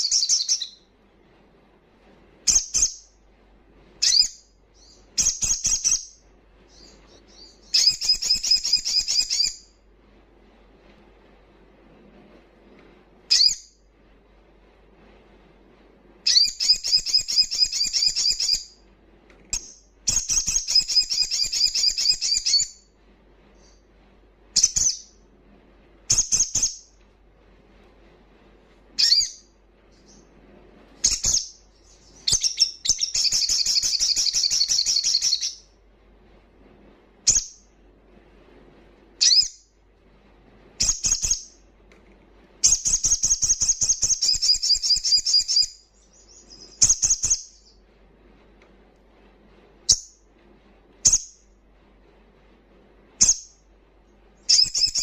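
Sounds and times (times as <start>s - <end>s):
bird high-pitched trilling: 0.0s - 0.8s, 4.0s - 9.6s, 13.3s - 13.7s, 16.3s - 18.7s, 20.1s - 22.8s, 29.0s - 29.5s, 31.0s - 35.6s, 42.6s - 47.8s, 54.5s - 55.0s.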